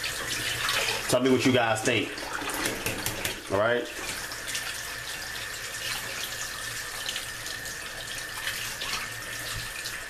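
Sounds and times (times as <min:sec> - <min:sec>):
tap water splashing: 0:02.2 - 0:04.8, 0:08.0 - 0:10.0.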